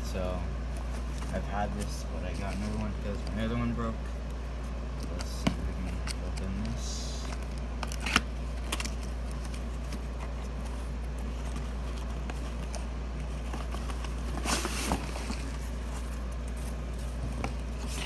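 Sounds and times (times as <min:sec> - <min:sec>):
steady low hum: 0:00.0 - 0:18.0
cardboard scraping and rustling: 0:00.8 - 0:03.8, 0:07.4 - 0:18.0.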